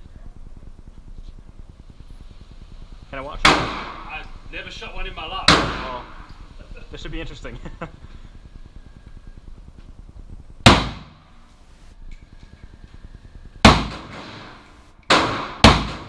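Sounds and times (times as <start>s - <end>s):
gunshot echo indoors: 13.7s - 16.0s.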